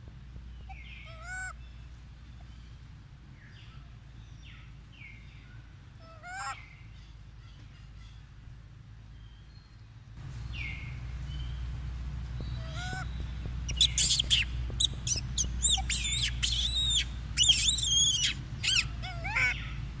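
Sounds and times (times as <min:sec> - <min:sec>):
low steady rumble: 0:00.0 - 0:20.0
high-pitched animal chirps: 0:13.7 - 0:19.6.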